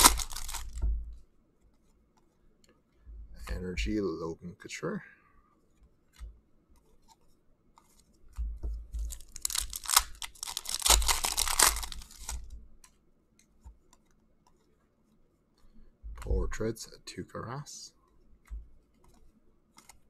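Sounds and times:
cards crinkling rustle: 0:00.0 - 0:00.9, 0:06.8 - 0:14.7
faint clicks of cards: 0:05.5 - 0:16.7, 0:17.9 - 0:20.0.

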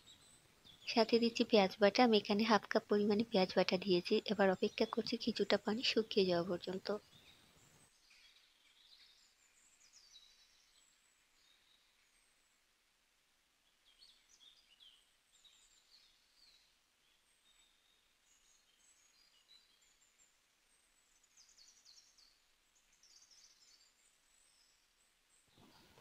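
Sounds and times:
faint bird chirps: 0:13.6 - 0:26.0.

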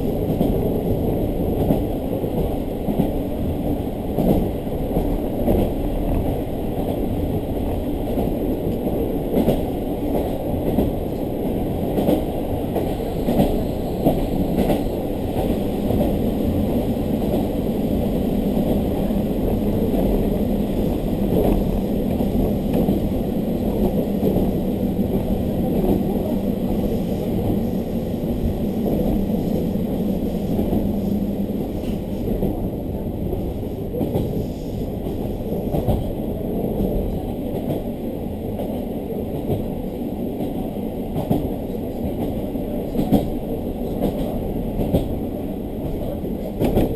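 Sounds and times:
railcar rumbling on rails: 0:00.0 - 0:46.9.

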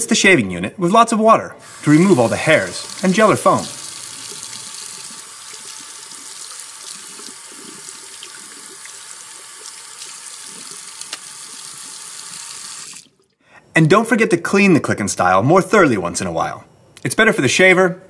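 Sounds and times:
tap water running into sink: 0:01.6 - 0:13.2.

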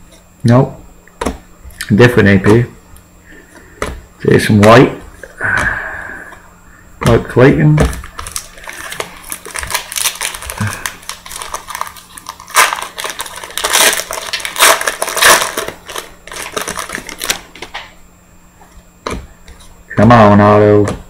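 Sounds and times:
wrapper crinkling and rustling: 0:08.0 - 0:17.8.

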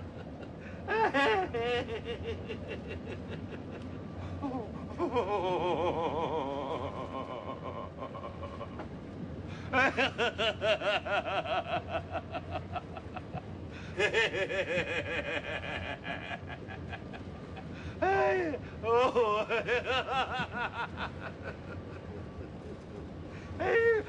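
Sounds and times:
man laughing heartily: 0:00.0 - 0:24.0.

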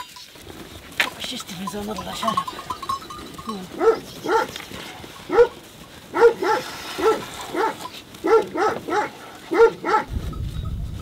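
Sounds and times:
dog barking: 0:03.8 - 0:04.6, 0:05.3 - 0:10.1.

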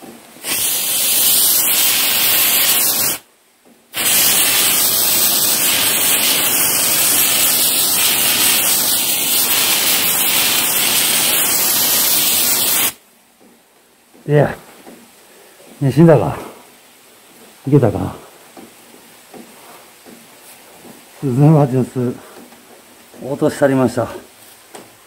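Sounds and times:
aerosol spray can hissing: 0:00.4 - 0:03.3, 0:04.0 - 0:13.0.

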